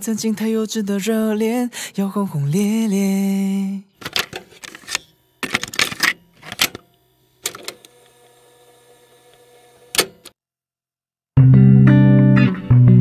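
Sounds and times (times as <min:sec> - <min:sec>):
mechanical clicking and clattering: 0:04.0 - 0:07.9, 0:09.9 - 0:10.3
sharp click: 0:09.9 - 0:10.4.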